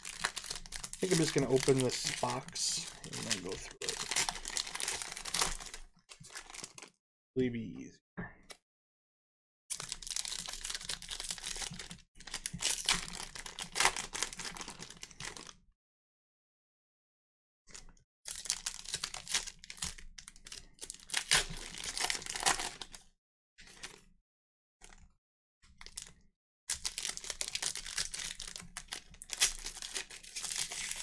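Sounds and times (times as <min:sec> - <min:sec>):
card wrappers crinkling and tearing: 0:00.0 - 0:07.0, 0:09.7 - 0:15.5, 0:18.3 - 0:23.0, 0:26.7 - 0:31.0.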